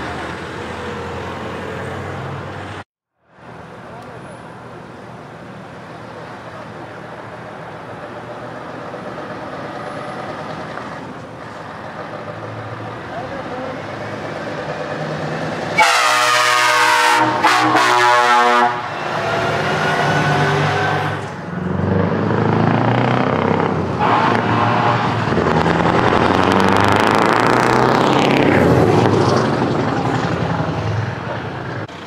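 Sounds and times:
truck diesel engine passing: 0.0s - 32.0s
truck air horn blasts: 15.8s - 21.3s, 24.0s - 25.3s.

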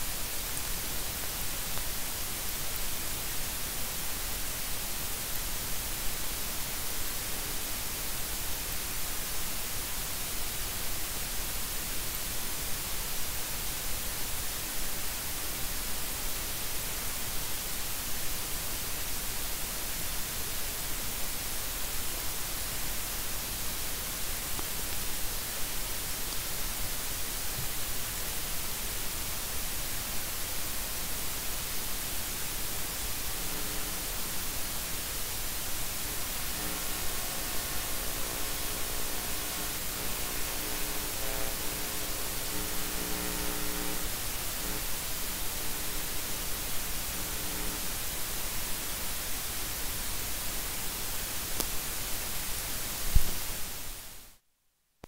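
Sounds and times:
microphone preamp hiss: 0.0s - 54.5s.

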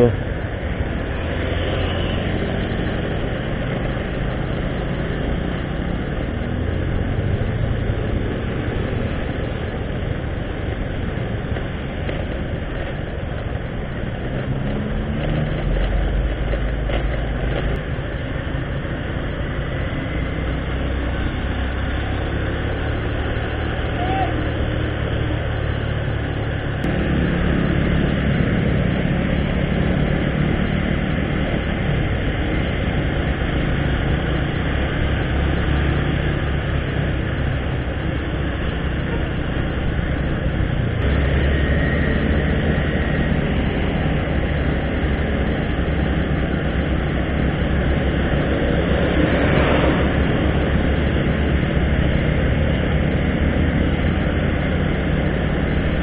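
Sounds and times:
motorcycle engine running: 0.0s - 56.0s
road noise: 0.0s - 56.0s.

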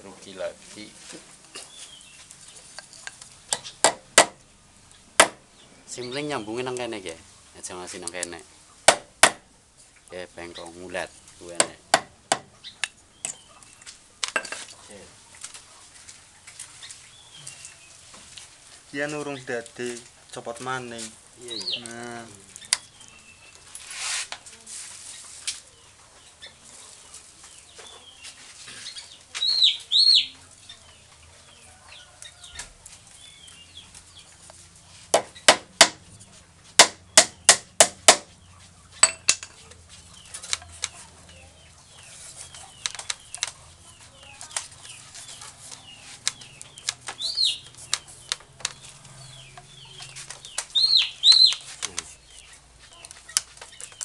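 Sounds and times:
rattan strand rustling and scraping: 0.0s - 3.6s, 13.2s - 25.7s, 38.5s - 54.0s
high bird chirps: 12.5s - 13.9s, 21.5s - 21.9s, 27.6s - 32.6s, 40.0s - 54.0s.

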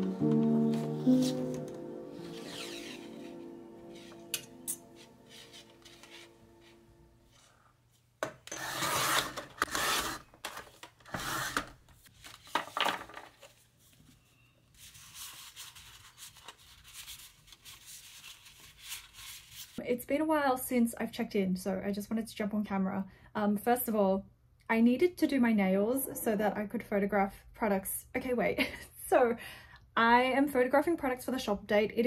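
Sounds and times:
background music: 0.0s - 7.2s
rubbing and scraping strokes: 0.7s - 7.6s.

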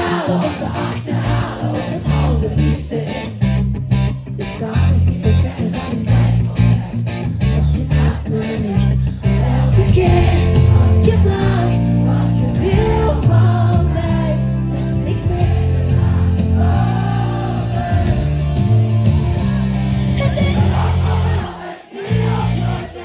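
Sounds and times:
woman singing lead: 0.0s - 3.6s, 4.4s - 6.9s, 7.5s - 18.2s, 20.1s - 22.8s
electric guitars: 0.0s - 21.5s
strong bass line: 1.2s - 22.9s.

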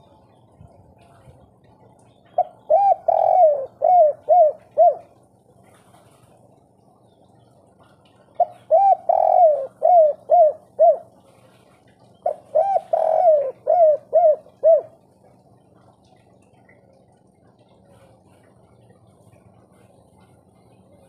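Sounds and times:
dove cooing: 2.2s - 5.2s, 8.3s - 11.3s, 12.2s - 15.7s.

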